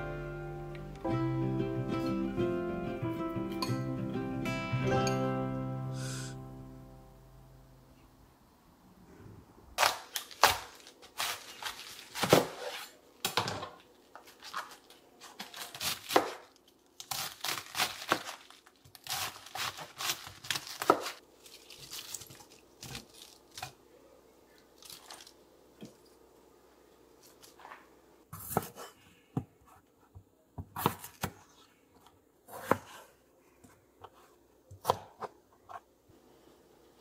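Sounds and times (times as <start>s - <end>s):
knife crunching through cabbage: 9.8s - 13.0s, 14.2s - 23.8s.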